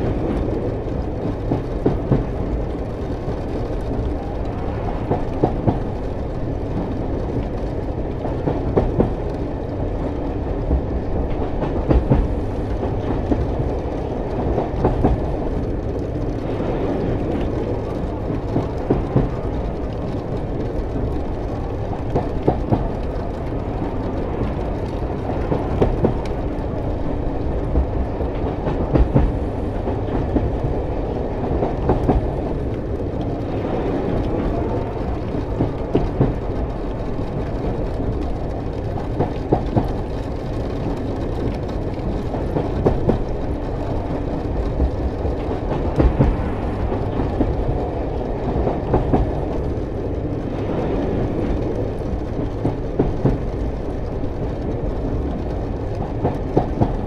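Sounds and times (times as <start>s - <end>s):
freight train rumbling past: 0.0s - 57.0s.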